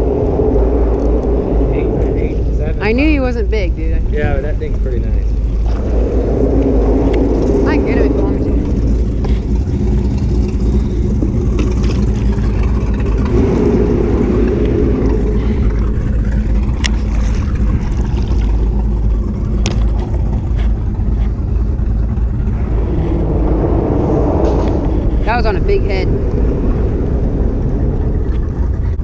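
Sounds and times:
boat motor rumbling: 0.0 - 29.0.

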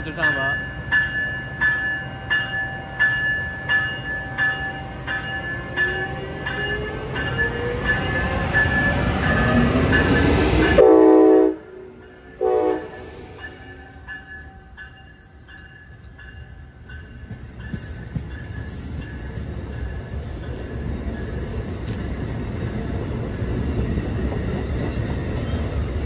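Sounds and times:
locomotive bell ringing: 0.0 - 22.0
train horn blasts: 10.7 - 13.1.

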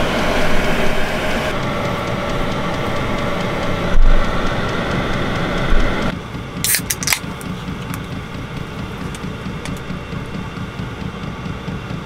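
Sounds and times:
steady low hum: 0.0 - 12.0
can snapping open with hiss: 6.6 - 7.3.

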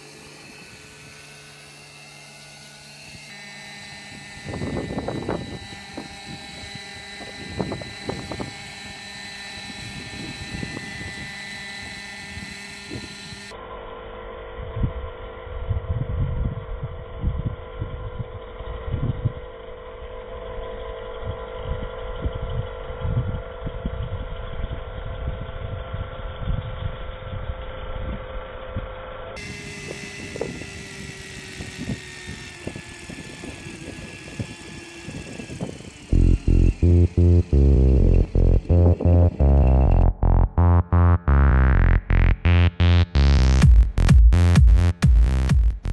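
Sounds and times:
model helicopter rotor whine: 0.0 - 40.0
low rumbles: 36.1 - 45.9.

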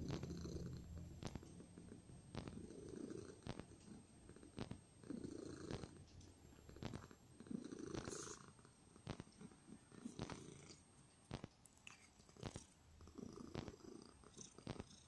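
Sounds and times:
cat purring: 0.0 - 15.0
soft ticks: 7.9 - 8.4.

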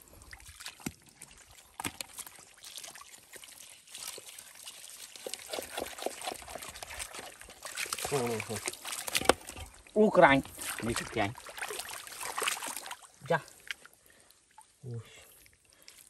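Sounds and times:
water dripping and trickling: 0.0 - 16.0
fish flopping in water: 5.1 - 9.8.

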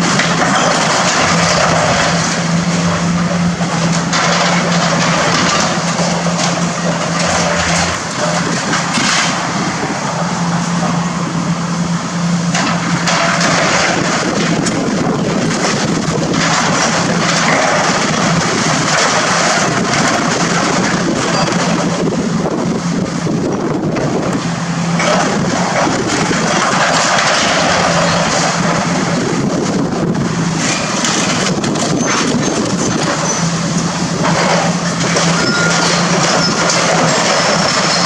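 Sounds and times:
loud crashes: 0.0 - 9.5
sheet metal crunching and scraping: 0.0 - 11.1, 24.0 - 38.0
excavator diesel engine running: 0.0 - 38.0.

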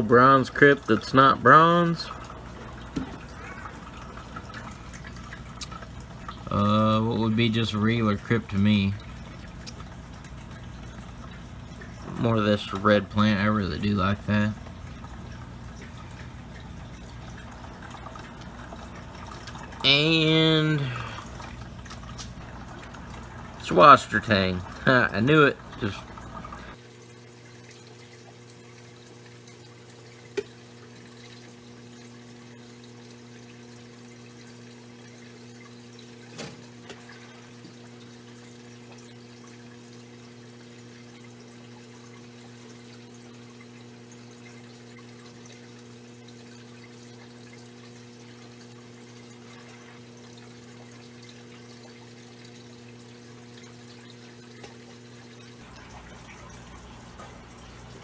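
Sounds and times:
steady low hum: 0.0 - 26.8
water dripping and trickling: 0.0 - 58.0.

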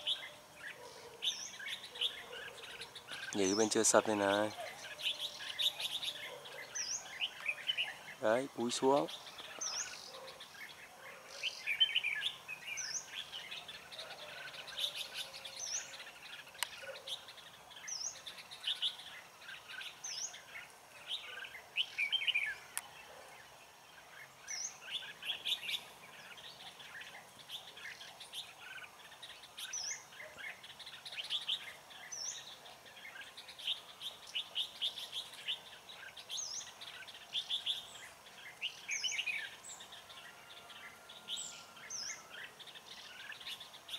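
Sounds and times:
bulbuls singing warbled phrases: 0.0 - 43.9.

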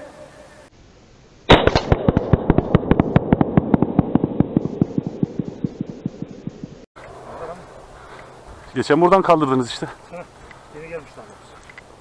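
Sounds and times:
slowed-down shotgun blast: 1.5 - 7.9.

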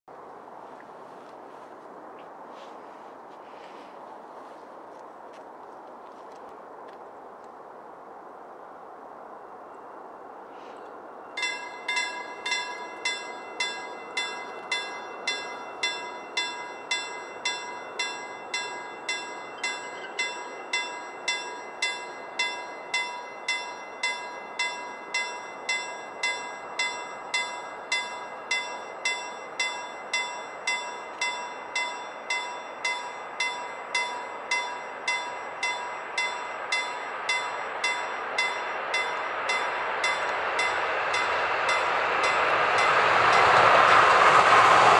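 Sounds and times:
approaching train: 0.0 - 44.9
level crossing warning bell: 11.2 - 44.0.

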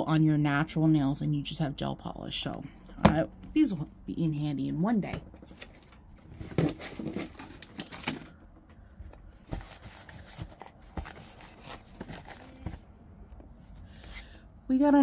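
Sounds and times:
packaging rustling and crinkling: 5.5 - 8.5, 9.5 - 12.8.

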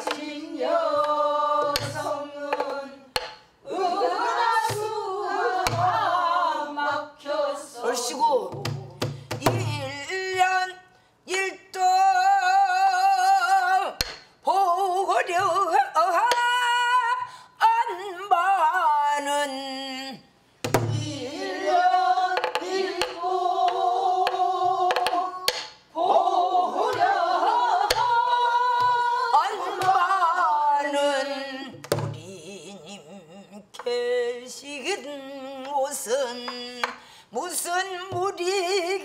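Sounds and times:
woman singing with vibrato: 0.0 - 20.3, 20.9 - 39.0
low drum thumps: 20.7 - 21.1.

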